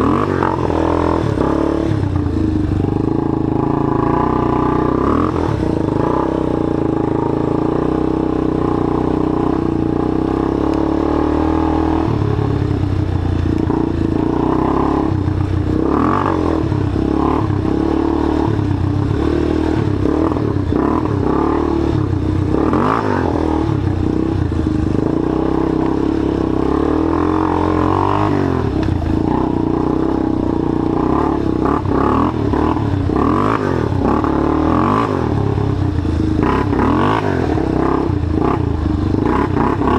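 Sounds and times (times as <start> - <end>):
atv engine revving: 0.0 - 39.9.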